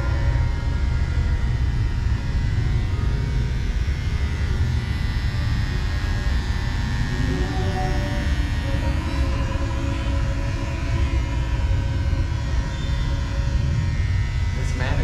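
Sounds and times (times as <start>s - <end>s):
electric hair clippers buzzing: 0.0s - 15.0s.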